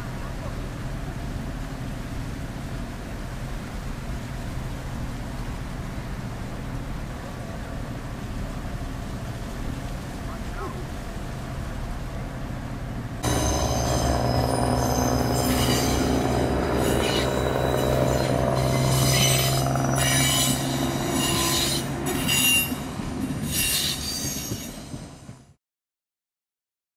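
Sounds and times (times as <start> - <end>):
steady low hum: 13.2 - 23.2
train wheels squealing on rails: 13.2 - 25.5.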